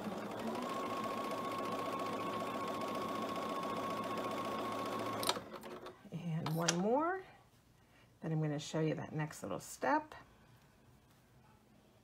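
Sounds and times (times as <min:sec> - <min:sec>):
sewing machine stitching: 0:00.0 - 0:06.0.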